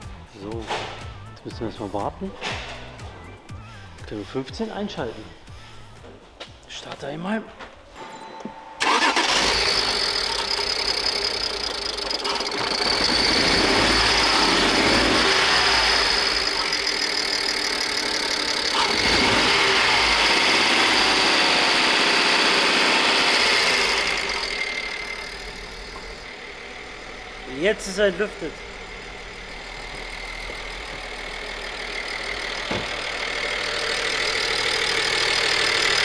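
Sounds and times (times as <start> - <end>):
petrol engine starting and running: 8.8 - 36.0.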